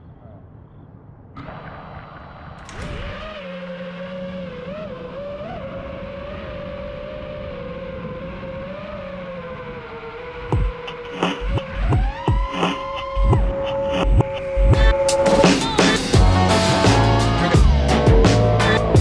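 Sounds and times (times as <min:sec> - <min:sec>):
quadcopter motors whining: 0:02.4 - 0:16.2.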